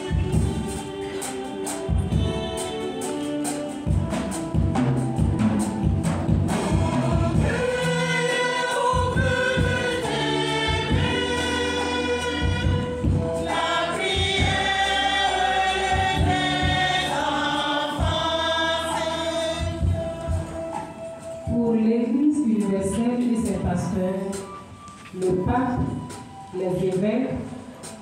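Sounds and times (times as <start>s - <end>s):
drum beats: 0.0s - 21.9s, 22.5s - 28.0s
choir singing a hymn: 6.2s - 21.4s.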